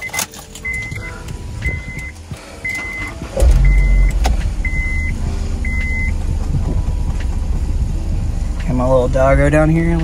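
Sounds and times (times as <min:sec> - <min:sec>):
dashboard warning chime: 0:00.0 - 0:06.3
car engine starting and rumbling: 0:00.0 - 0:10.0.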